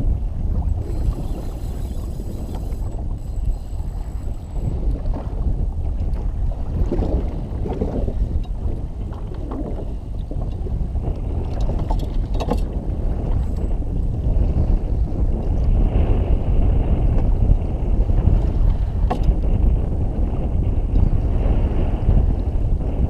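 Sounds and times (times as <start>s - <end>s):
water lapping against hull: 0.0s - 23.0s
wind buffeting microphone: 0.0s - 23.0s.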